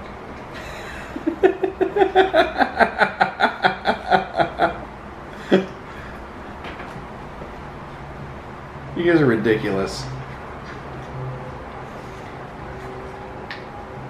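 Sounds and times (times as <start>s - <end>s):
person laughing: 0.6s - 5.8s.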